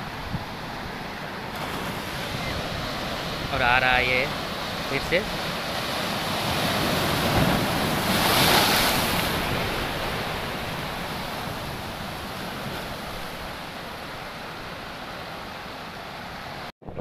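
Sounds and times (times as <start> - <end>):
surf washing over rocks: 0.0 - 15.8
sea wave breaking on rocks: 4.0 - 11.4.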